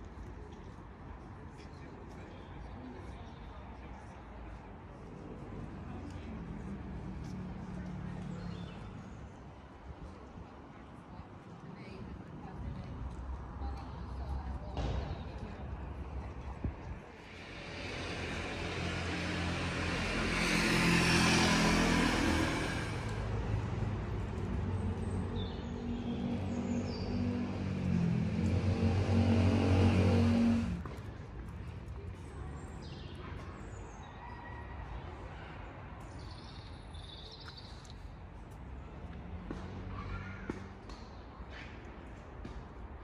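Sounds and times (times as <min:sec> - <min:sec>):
car passing: 0:17.1 - 0:31.0
vehicle engine humming: 0:17.2 - 0:31.0.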